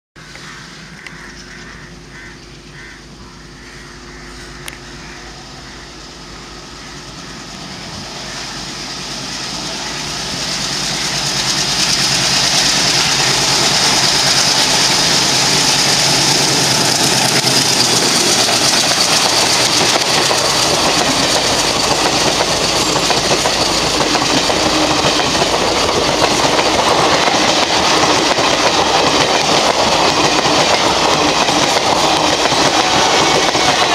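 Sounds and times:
train wheels clattering on rails: 8.0s - 33.9s.

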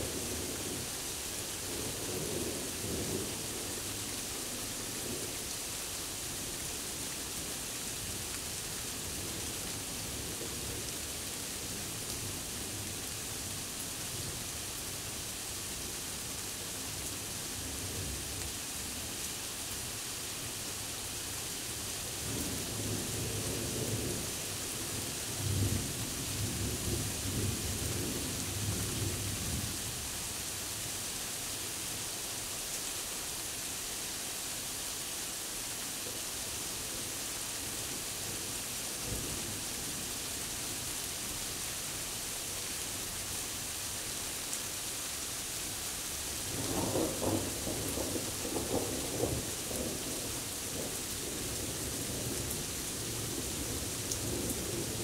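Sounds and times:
rain hiss: 0.0s - 55.0s
thunder rumbling: 46.6s - 52.3s.

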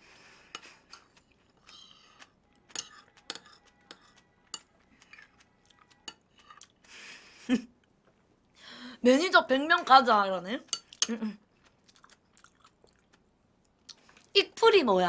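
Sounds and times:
person chewing wet mouth sounds: 10.7s - 14.3s.

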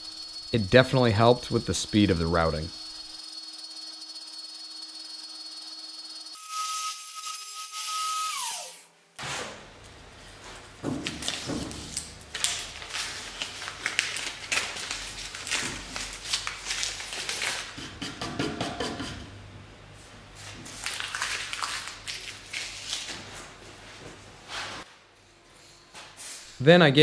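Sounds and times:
paper crinkling and tearing: 11.2s - 17.7s, 20.7s - 23.3s.

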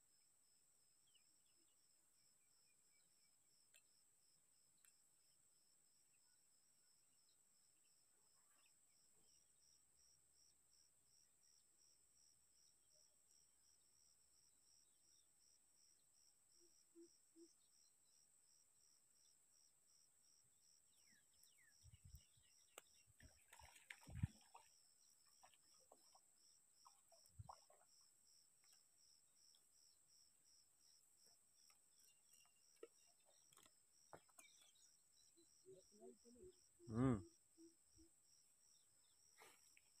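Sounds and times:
insects chirping: 13.7s - 40.0s.

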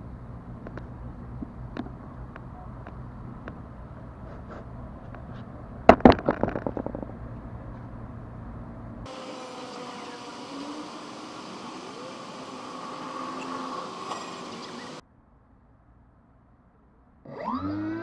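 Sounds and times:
foam plane clattering on paving: 4.3s - 7.3s
faint steady hum: 6.7s - 17.1s.

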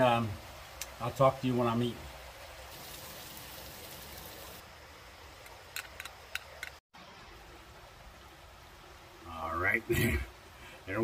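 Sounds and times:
wind hiss: 0.0s - 6.4s
light rain: 0.0s - 11.0s.

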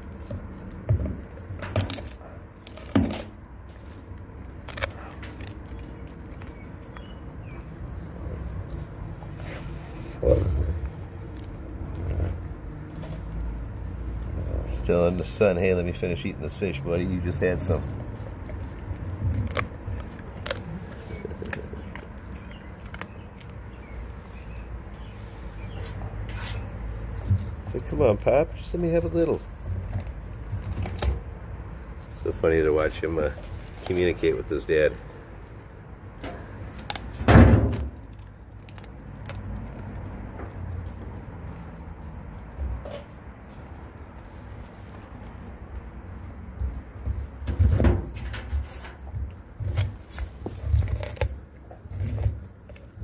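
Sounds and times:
bones cracking: 0.0s - 25.1s, 29.0s - 35.1s, 36.4s - 42.2s, 49.3s - 53.0s
dog chewing wet crunching: 0.0s - 47.4s, 49.0s - 53.0s.

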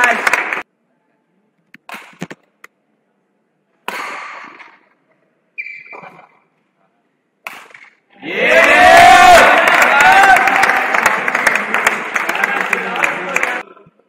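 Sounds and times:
rackets striking shuttlecock: 1.8s - 2.4s, 3.8s - 4.9s, 7.4s - 8.0s
shoe squeak on court floor: 5.6s - 6.4s.

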